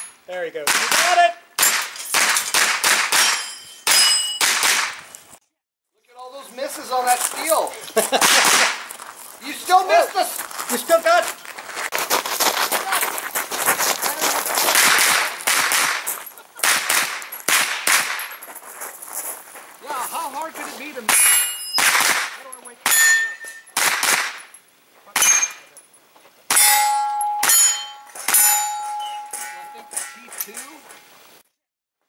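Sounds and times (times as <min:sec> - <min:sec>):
carbine gunshots: 0:00.6 - 0:05.0, 0:08.2 - 0:08.8, 0:14.7 - 0:18.4, 0:21.1 - 0:24.5
steel targets clanging: 0:03.1 - 0:04.6, 0:21.0 - 0:30.9.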